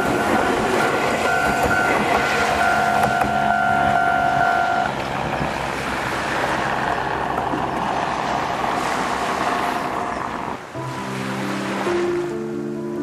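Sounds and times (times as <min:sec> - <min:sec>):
level-crossing warning bell: 0:00.0 - 0:04.9
steady rushing noise: 0:00.0 - 0:12.0.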